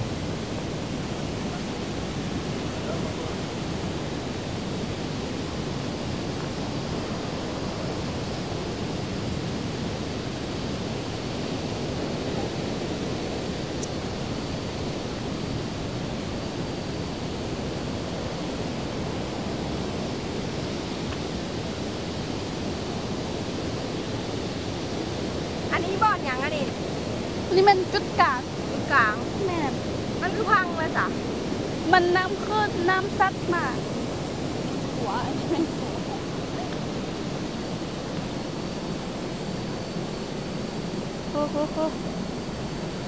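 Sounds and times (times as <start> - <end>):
waterfall rushing: 0.0 - 41.3.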